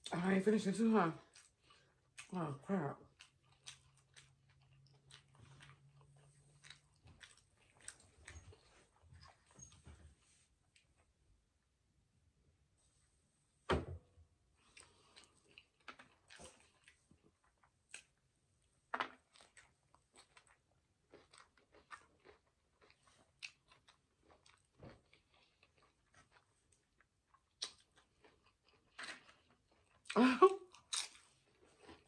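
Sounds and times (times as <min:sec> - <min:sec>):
wet chewing sounds: 0:01.2 - 0:09.7, 0:14.6 - 0:18.3, 0:19.1 - 0:32.0
thump: 0:13.6 - 0:14.1.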